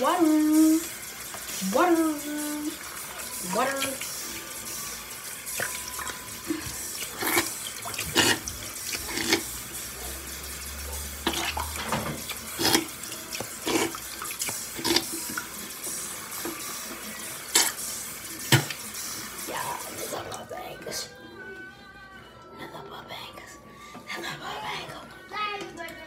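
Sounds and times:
tap running into sink: 11.2s - 17.8s, 18.4s - 19.0s.

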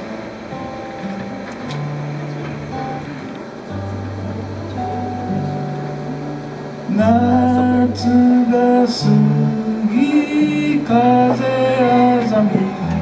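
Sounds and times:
acoustic guitar: 0.0s - 13.0s
man singing: 6.9s - 13.0s.

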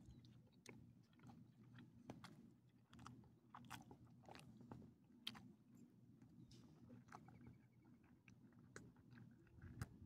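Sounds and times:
dog licking and chewing food: 0.2s - 5.5s.

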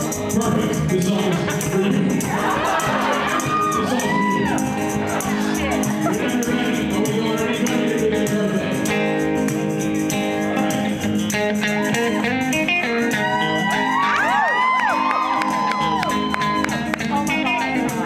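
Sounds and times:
man singing into microphone: 0.0s - 2.7s, 3.3s - 9.5s
live rock band: 0.0s - 18.0s.

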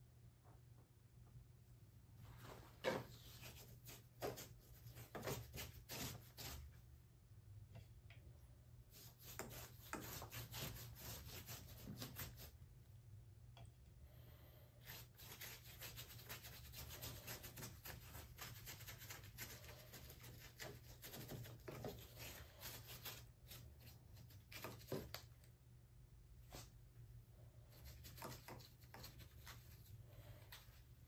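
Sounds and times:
scratchy rubbing on rough plaster: 3.1s - 6.8s, 8.9s - 12.6s, 14.8s - 25.2s, 27.7s - 30.9s.

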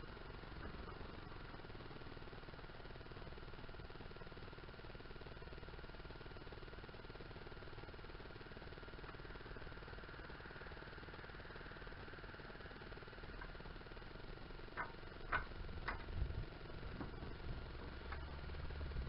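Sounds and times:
faint background hum: 0.0s - 19.0s
tools clicking against engine: 14.8s - 16.2s.

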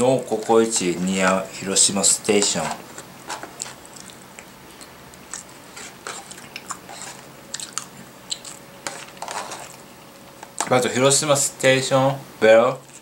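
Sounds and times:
person chewing and eating: 2.9s - 10.6s.

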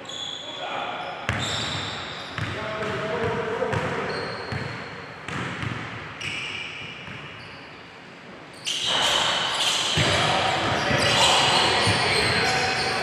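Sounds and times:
sneaker squeaks: 0.0s - 3.0s, 3.7s - 13.0s
basketball bouncing on gym floor: 1.3s - 6.2s, 10.0s - 11.2s
crowd noise and voices: 8.0s - 13.0s.

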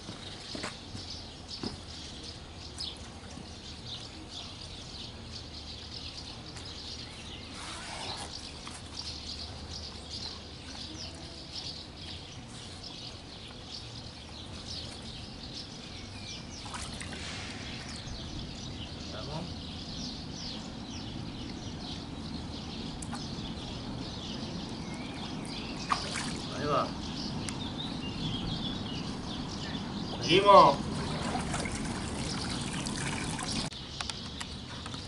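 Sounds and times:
small birds chirping: 0.0s - 35.0s
water sloshing: 16.6s - 18.3s, 25.2s - 26.5s, 30.8s - 33.7s.

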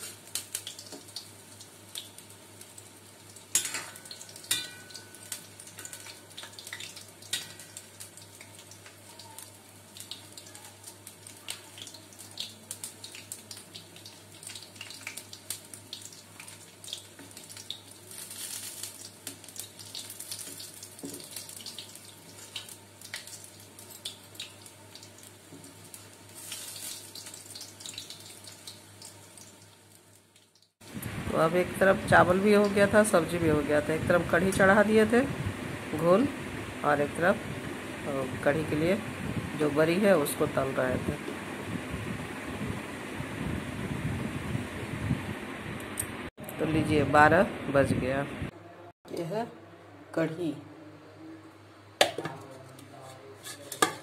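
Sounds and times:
dumplings sizzling in hot oil: 0.0s - 46.4s
slotted spoon clinking on pan: 3.6s - 5.2s.

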